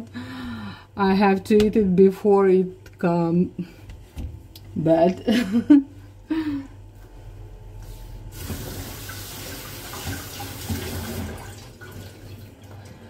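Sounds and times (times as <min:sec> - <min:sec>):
kitchen tap running into sink: 0:08.3 - 0:13.0.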